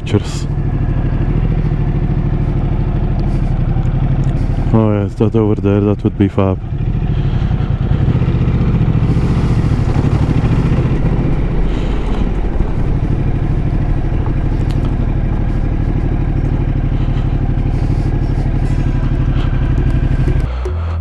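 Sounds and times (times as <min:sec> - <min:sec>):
motorcycle engine running: 0:00.0 - 0:21.0
tyres crunching over gravel: 0:11.6 - 0:20.4.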